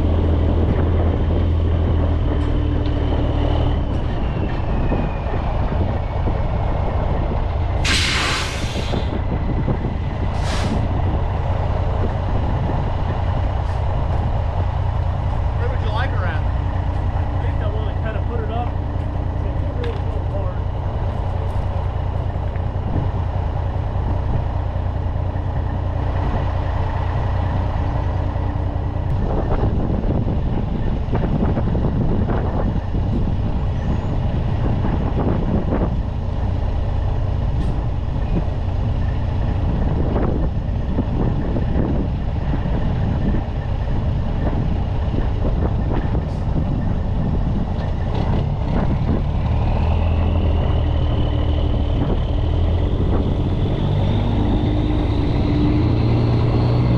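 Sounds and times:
diesel engine running: 0.0 - 56.9
short air hisses: 7.8 - 9.1, 10.3 - 10.9.

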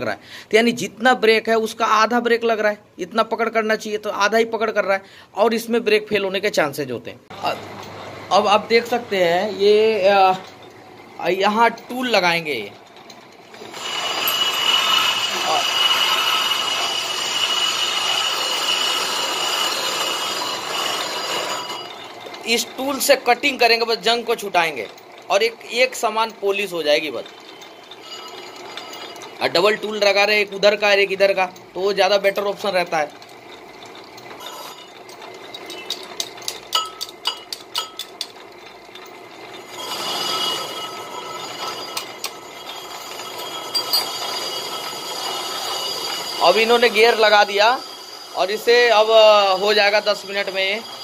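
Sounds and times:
lathe running: 7.3 - 51.0
ringing metal scrape: 11.5 - 23.3, 27.0 - 30.6, 34.2 - 38.3, 39.6 - 51.0
cutting tool squealing on metal: 13.5 - 23.6, 26.5 - 30.7, 34.4 - 35.0, 39.6 - 51.0
metallic clicks and knocks: 33.1 - 39.7.

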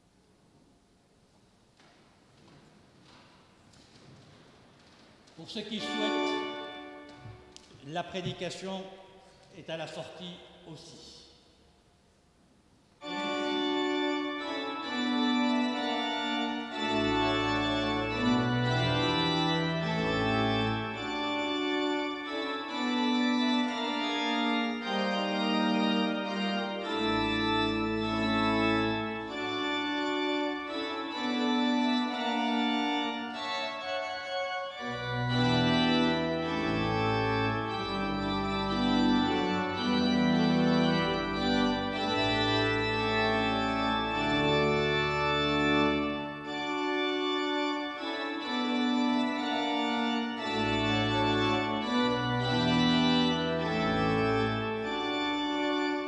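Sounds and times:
church organ chords: 5.3 - 11.6, 13.0 - 56.0
deep organ pedal bass: 5.7 - 7.1, 13.0 - 56.0.

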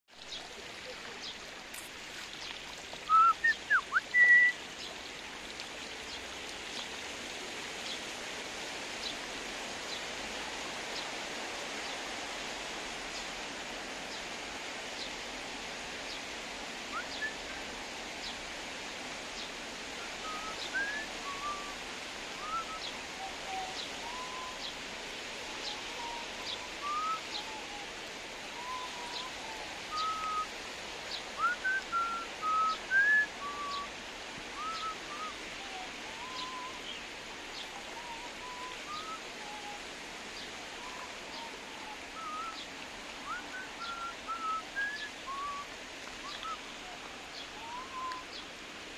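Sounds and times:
rain falling on water: 0.1 - 48.9
bird whistling: 3.1 - 4.6, 20.2 - 21.7, 22.4 - 22.9, 23.5 - 24.6, 26.8 - 27.4, 29.9 - 30.5, 31.4 - 33.9, 34.6 - 35.4, 36.2 - 36.8, 38.0 - 39.8, 42.2 - 42.6, 43.3 - 45.6, 46.2 - 46.6, 47.6 - 48.2.

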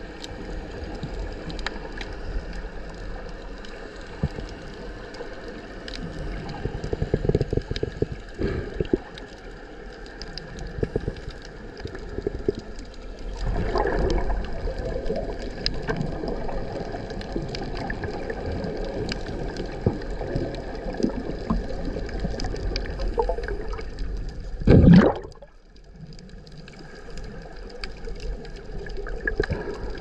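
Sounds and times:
muffled underwater sloshing: 0.0 - 30.0
rush of water: 0.0 - 30.0.

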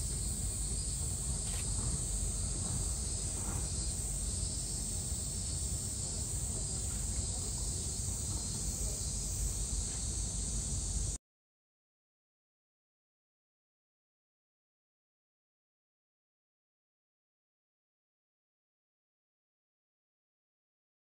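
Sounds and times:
cicadas singing: 0.0 - 11.2.

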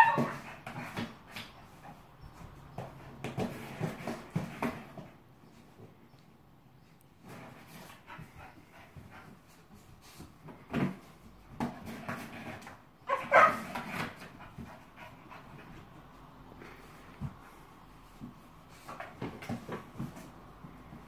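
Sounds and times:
dog whining and barking: 0.0 - 0.6, 13.0 - 14.0.

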